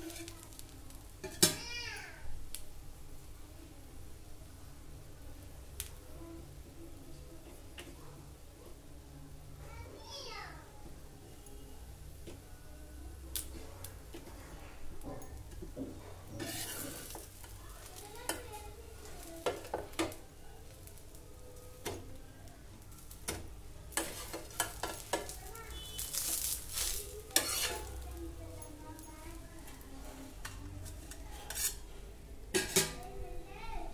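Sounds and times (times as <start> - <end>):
spatula scraping a hot griddle: 0.0 - 1.7, 13.5 - 21.2, 22.7 - 28.9, 29.8 - 33.0
light sizzling: 0.0 - 33.9.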